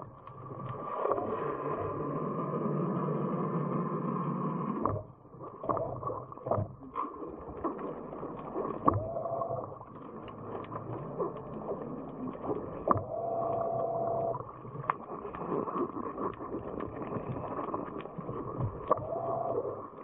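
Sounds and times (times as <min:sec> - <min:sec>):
underwater thruster whine: 0:07.4 - 0:20.0.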